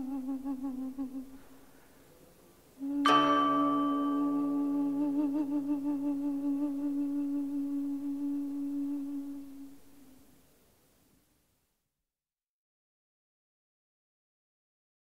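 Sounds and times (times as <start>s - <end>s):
background music held note: 2.8s - 5.6s.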